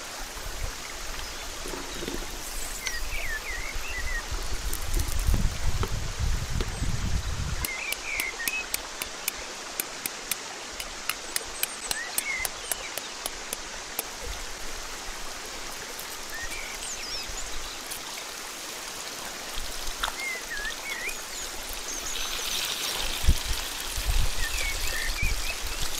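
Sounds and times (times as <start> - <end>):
sausage sizzling in hot oil: 2.4 - 3.9
oil crackling pops: 4.7 - 6.0.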